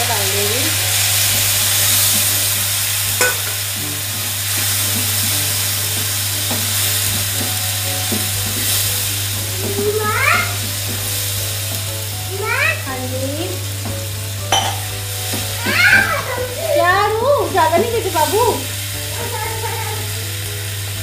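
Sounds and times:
vegetables sizzling in frying pan: 0:00.0 - 0:21.0
spatula knocking against pan: 0:03.2 - 0:03.6, 0:04.6 - 0:08.8.

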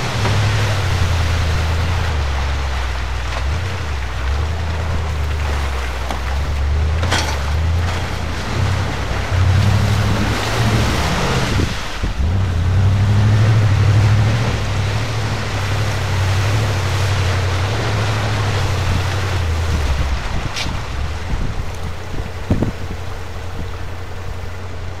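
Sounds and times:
engine running hard: 0:00.0 - 0:25.0
hiss of water and slush: 0:08.2 - 0:24.7.

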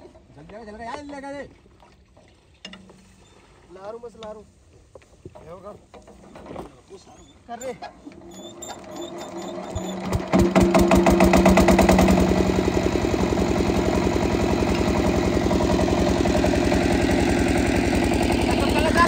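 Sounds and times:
hand cranking engine: 0:07.6 - 0:19.0
diesel engine running: 0:09.8 - 0:19.0.

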